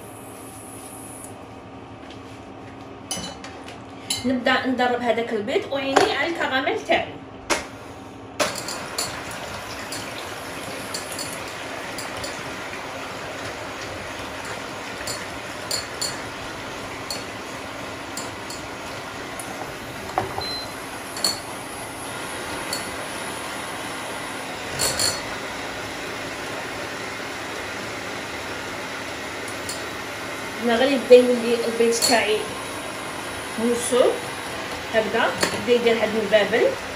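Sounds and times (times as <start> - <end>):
beaters clinking against glass bowl: 14.5 - 16.3, 18.1 - 18.7, 21.2 - 21.5, 24.8 - 25.3.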